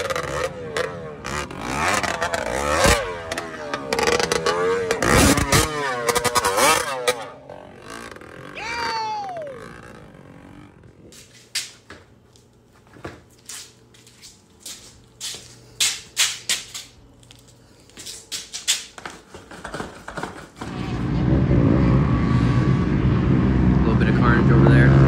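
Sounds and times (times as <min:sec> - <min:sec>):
loud steady rumble: 0:00.0 - 0:11.2, 0:20.6 - 0:25.0.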